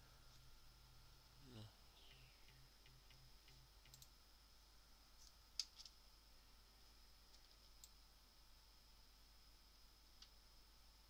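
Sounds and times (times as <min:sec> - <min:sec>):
faint high-pitched hum: 0:00.0 - 0:11.0
faint computer mouse clicks: 0:02.4 - 0:04.1.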